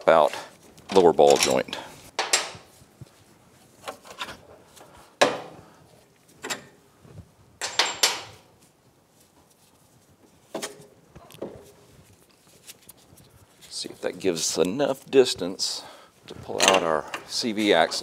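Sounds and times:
metal knocks and clunks: 0:07.6 - 0:08.4, 0:16.5 - 0:17.2.

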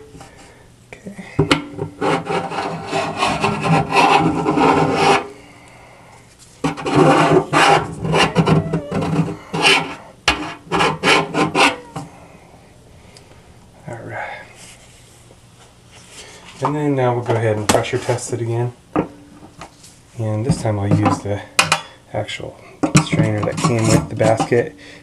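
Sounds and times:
screwdriver scraping metal drain: 0:02.0 - 0:05.3, 0:06.6 - 0:12.0, 0:23.2 - 0:24.5.

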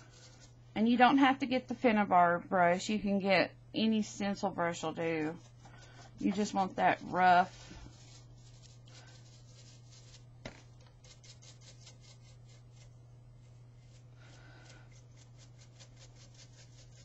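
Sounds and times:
brush scratching on painted surface: 0:00.0 - 0:00.8, 0:04.9 - 0:10.3, 0:11.0 - 0:17.0.

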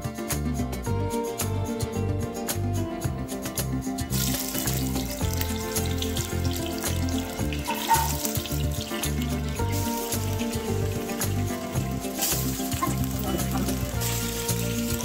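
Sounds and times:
background music: 0:00.0 - 0:15.0
fish sizzling in hot oil: 0:04.0 - 0:15.0.

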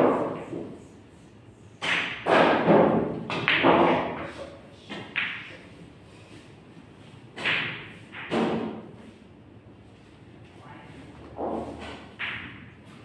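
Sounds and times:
pool balls clacking: 0:01.8 - 0:04.2, 0:07.3 - 0:08.8, 0:11.3 - 0:13.0.

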